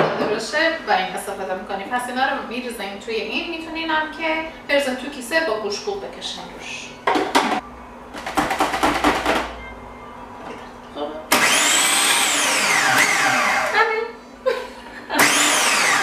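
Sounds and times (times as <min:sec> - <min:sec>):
food processor crushing biscuits: 0:11.3 - 0:13.8, 0:15.2 - 0:16.0.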